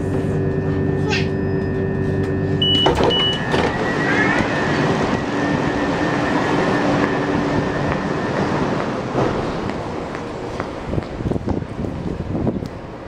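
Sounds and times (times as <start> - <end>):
short high beeps: 1.2 - 8.4
train rumble and hiss: 3.5 - 13.0.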